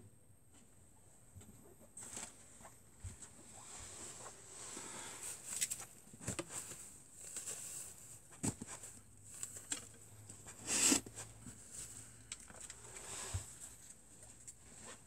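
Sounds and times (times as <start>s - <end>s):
arrows scraping out of foam target: 10.6s - 11.2s.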